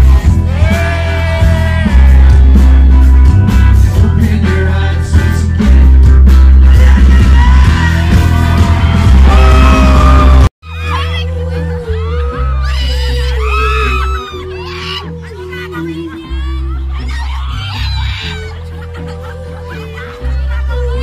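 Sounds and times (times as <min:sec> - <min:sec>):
live rock band: 0:00.0 - 0:21.0
person singing long notes: 0:06.6 - 0:10.5.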